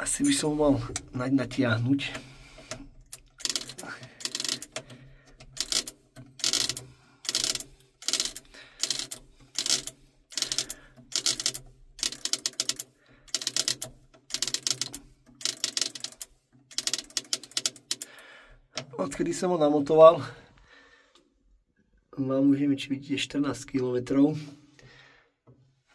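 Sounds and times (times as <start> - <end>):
clockwork ratcheting clatter: 2.6 - 18.2.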